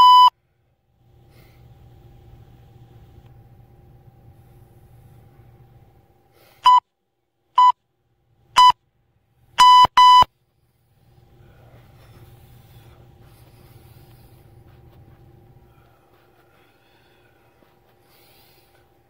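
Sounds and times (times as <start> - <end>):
electronic timer beeps: 0.0 - 0.3, 6.6 - 6.8, 8.6 - 8.8, 9.6 - 10.3.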